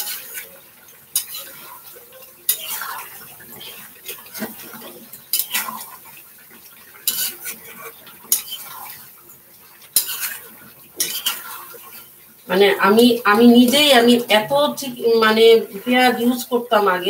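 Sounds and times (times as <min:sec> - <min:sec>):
spatula scraping a pot: 0:00.0 - 0:14.3
metal clanking on pot: 0:01.1 - 0:06.0, 0:07.0 - 0:07.6, 0:08.2 - 0:09.0, 0:09.9 - 0:10.4, 0:11.0 - 0:12.0.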